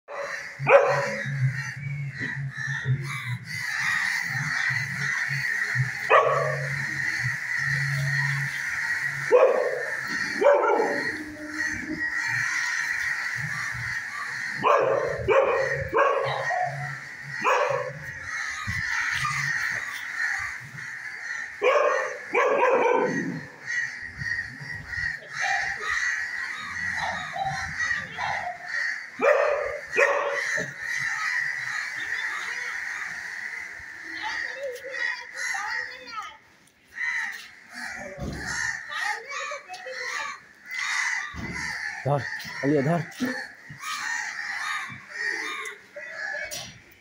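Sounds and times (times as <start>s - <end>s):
dogs barking: 0.1s - 1.6s, 4.0s - 20.8s, 21.4s - 32.0s.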